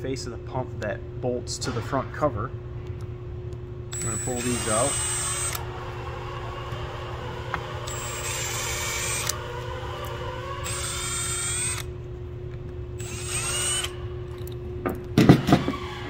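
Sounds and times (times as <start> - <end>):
power driver motor whine: 3.9 - 16.0.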